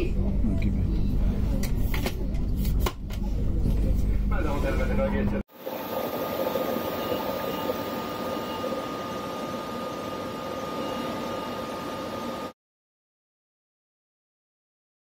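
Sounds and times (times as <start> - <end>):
electric locomotive fans humming: 5.5 - 12.6
high whine: 5.5 - 12.6.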